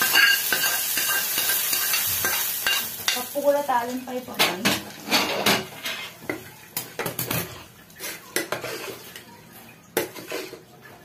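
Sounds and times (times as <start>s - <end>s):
steel cookware clinking and knocking: 0.0s - 3.3s.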